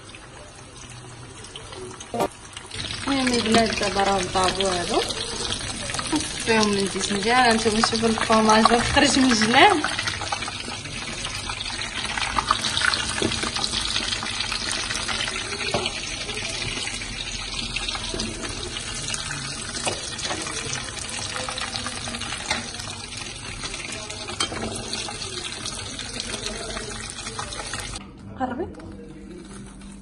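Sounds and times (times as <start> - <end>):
food frying in hot oil: 0.0 - 28.0.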